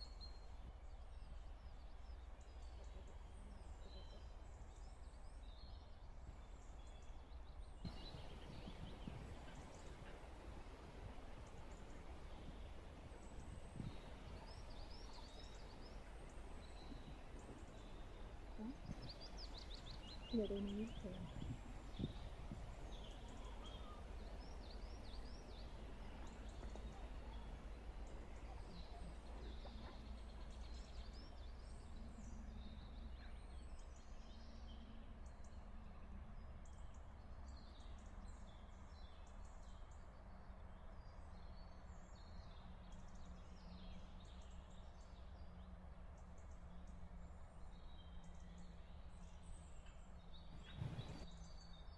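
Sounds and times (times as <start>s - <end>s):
small birds chirping and singing: 0.1s - 10.7s, 11.3s - 35.6s, 36.4s - 51.9s
low steady rumble: 46.4s - 51.7s.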